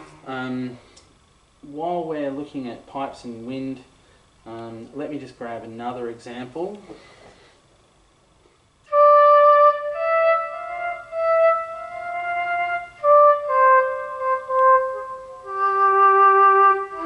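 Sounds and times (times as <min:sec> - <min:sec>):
synthesized woodwind guitar melody: 0:08.9 - 0:17.0.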